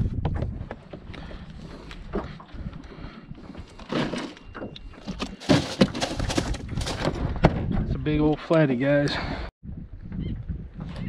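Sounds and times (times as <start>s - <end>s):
knocks and thumps on plastic cooler: 5.0s - 7.8s.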